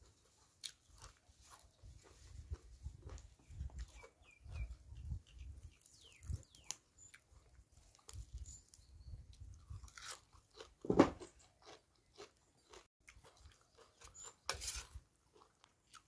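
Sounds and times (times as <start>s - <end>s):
chewing and crunching: 0.0s - 16.0s
metal spoon scraping tray: 14.5s - 15.0s.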